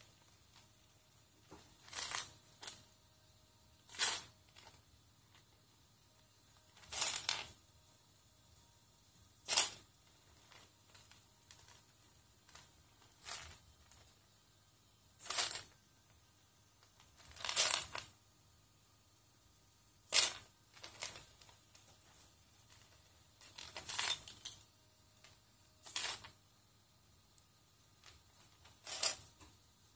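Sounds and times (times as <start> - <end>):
plastic bricks clattering: 20.1 - 21.6.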